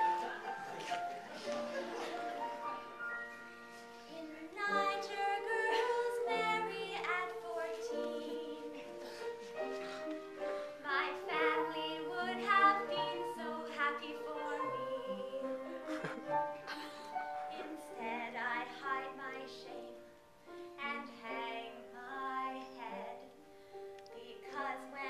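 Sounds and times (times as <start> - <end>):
women singing: 4.1 - 9.3, 10.8 - 15.8, 17.5 - 20.0, 20.8 - 23.3, 24.1 - 25.0.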